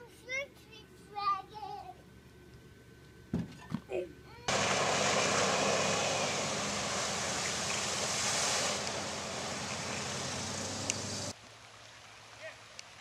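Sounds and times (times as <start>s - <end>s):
low engine hum: 4.5s - 11.4s
water spraying and churning: 4.5s - 11.4s
flowing water: 4.5s - 13.0s.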